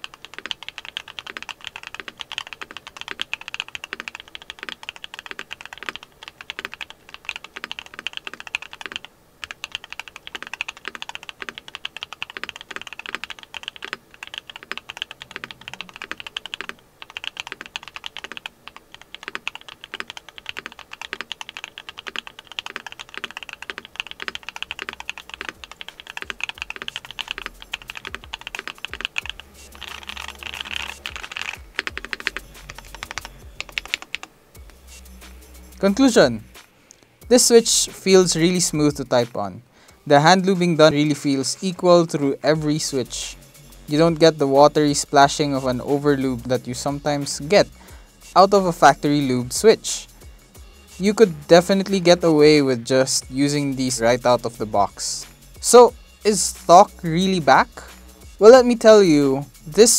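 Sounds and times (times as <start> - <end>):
fast typing on mechanical keyboard: 0.0 - 34.3.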